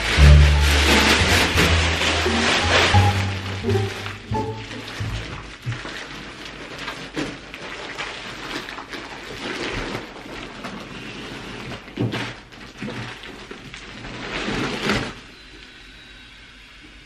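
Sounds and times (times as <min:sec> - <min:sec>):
plastic wrapping crinkling: 0:00.0 - 0:15.7.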